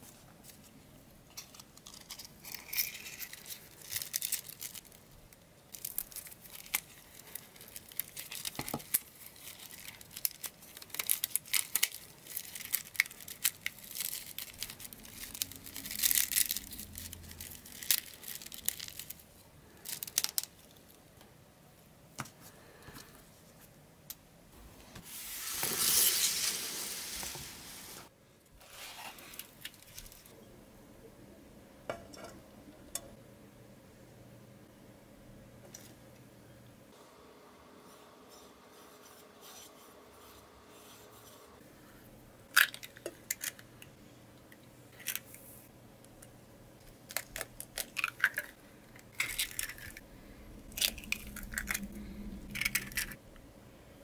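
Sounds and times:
cardboard matchboxes rustling: 0:01.3 - 0:05.0.

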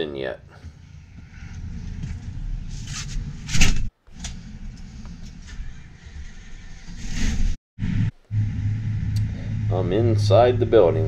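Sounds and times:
tractor engine rumbling: 0:07.8 - 0:11.0.

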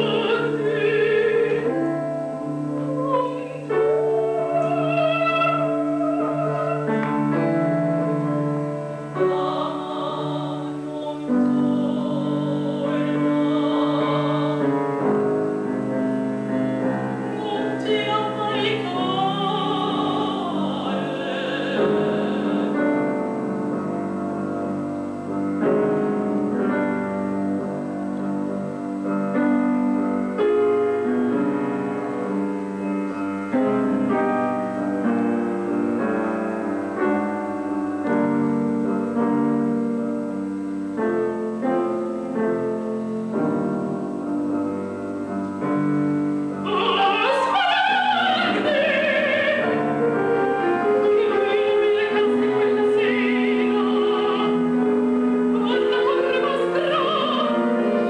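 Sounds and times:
women singing opera: 0:00.0 - 0:24.9, 0:46.2 - 0:58.0
piano accompaniment: 0:00.0 - 0:58.0.

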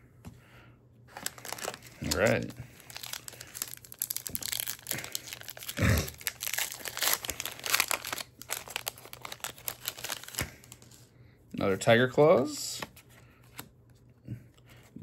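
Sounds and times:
foil wrapper crinkling and tearing: 0:01.1 - 0:11.1.

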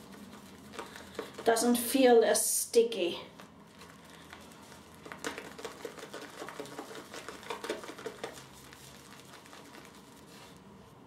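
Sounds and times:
shaving brush whipping lather: 0:04.3 - 0:10.6.

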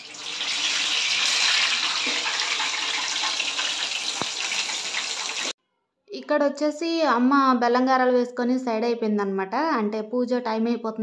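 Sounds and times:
food sizzling in hot oil: 0:00.0 - 0:05.6.

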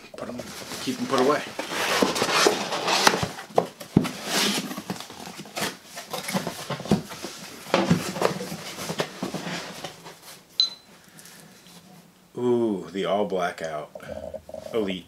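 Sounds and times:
paper and cardboard rustling: 0:00.2 - 0:10.5
knocks of cardboard boxes: 0:01.9 - 0:09.9.

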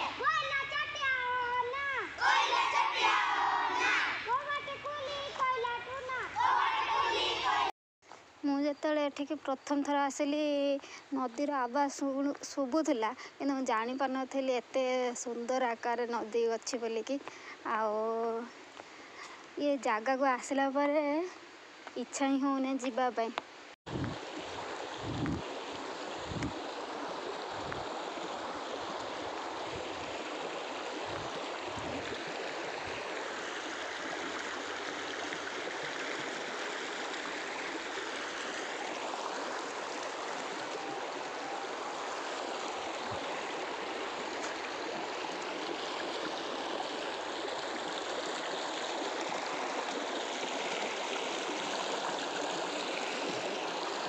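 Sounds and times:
river water rushing over stones: 0:23.5 - 0:54.0.

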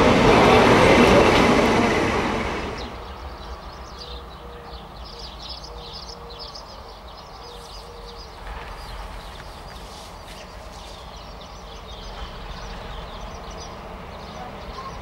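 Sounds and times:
train noise: 0:00.0 - 0:05.1, 0:07.0 - 0:15.0
birds chirping: 0:00.2 - 0:15.0.

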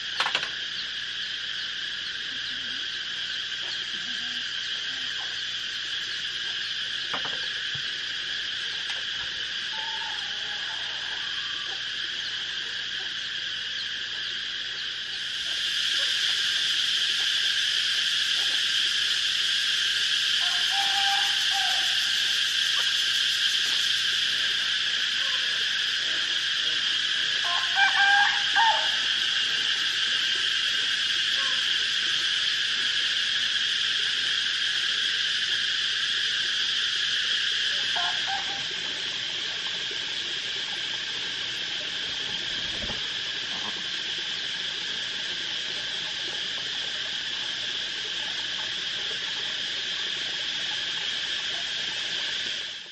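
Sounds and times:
high-pitched insect chorus: 0:00.0 - 0:52.9
short calls: 0:08.5 - 0:14.0, 0:14.8 - 0:43.9.

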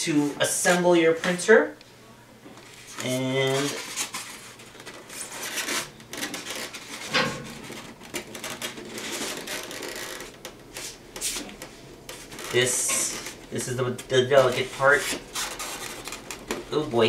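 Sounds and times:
foam packing rubbing and scraping: 0:02.7 - 0:13.4, 0:14.4 - 0:16.9.

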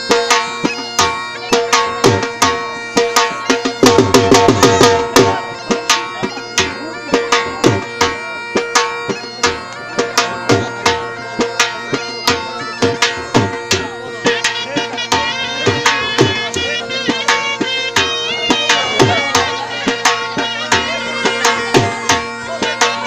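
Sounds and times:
drumming in driving rhythm: 0:00.0 - 0:23.0
wind instrument holding long notes: 0:00.0 - 0:23.0.

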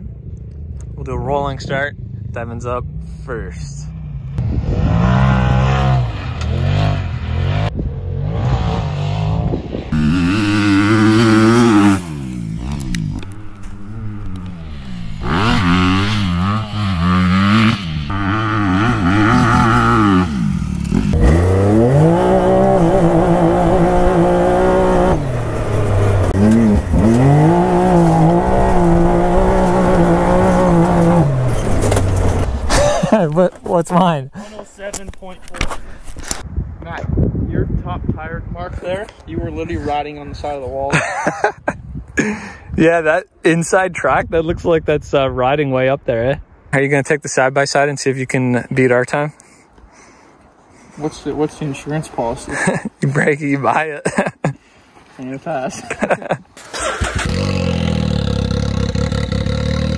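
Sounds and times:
dirt bike engine revving: 0:02.0 - 0:33.2, 0:56.0 - 0:59.9.

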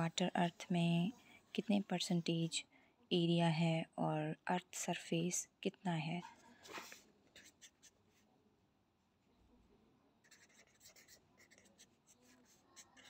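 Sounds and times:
pen scratching on paper: 0:06.7 - 0:08.2, 0:10.2 - 0:13.0.

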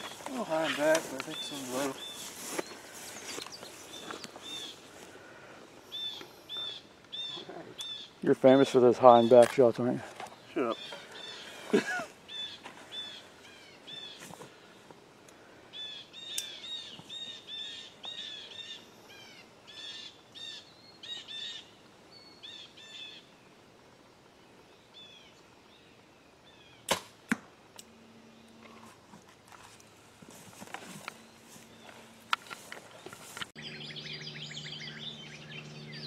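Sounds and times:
songbird chirping: 0:00.0 - 0:36.0
arrow release crack: 0:26.8 - 0:27.9
arrow striking foam target: 0:26.9 - 0:27.5.

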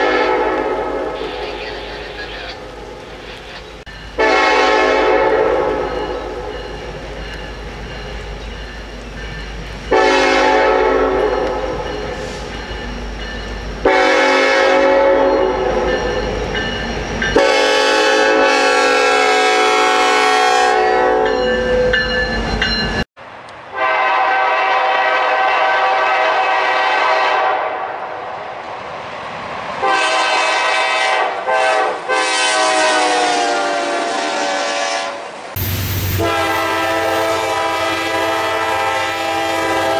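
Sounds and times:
locomotive air horn blasts: 0:00.0 - 0:01.5, 0:04.2 - 0:06.5, 0:09.9 - 0:12.4, 0:13.8 - 0:15.8, 0:17.4 - 0:21.4, 0:23.7 - 0:28.0, 0:29.8 - 0:35.3, 0:36.1 - 0:39.9.

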